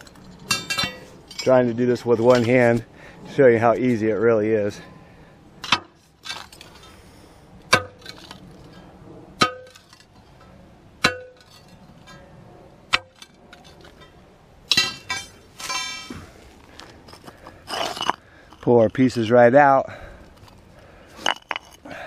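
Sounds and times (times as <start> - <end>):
pry bar clanking on concrete: 0.1 - 1.6, 11.0 - 12.2, 13.9 - 16.2.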